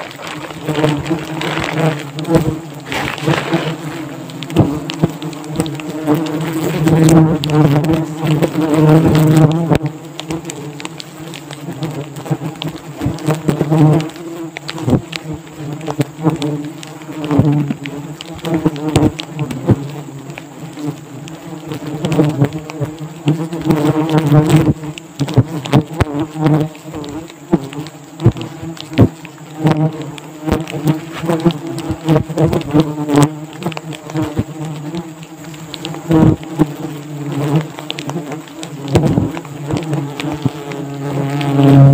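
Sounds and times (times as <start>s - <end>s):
plastic sack crinkling: 0.0s - 8.7s
wasps buzzing: 0.0s - 41.9s.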